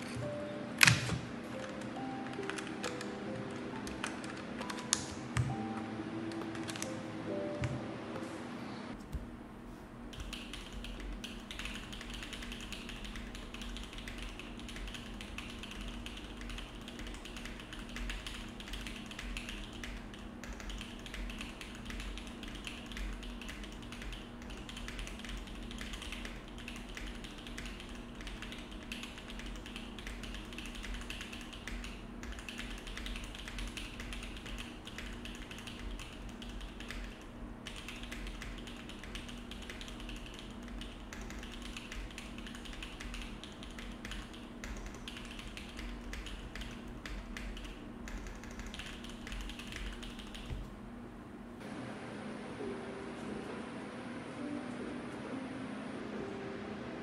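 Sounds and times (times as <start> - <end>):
fast typing on mechanical keyboard: 1.7 - 5.6, 10.1 - 50.7.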